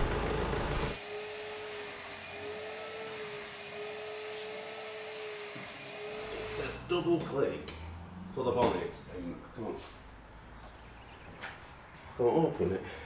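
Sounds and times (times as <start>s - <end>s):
broad outdoor rumble: 0.0s - 1.0s
steady motor hum: 0.0s - 4.2s.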